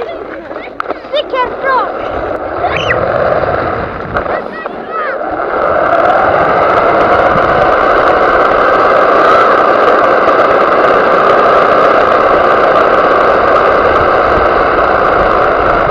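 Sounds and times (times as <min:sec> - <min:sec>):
toy truck motor running: 0:00.0 - 0:15.9
tyres rumbling on gravel: 0:00.0 - 0:15.9.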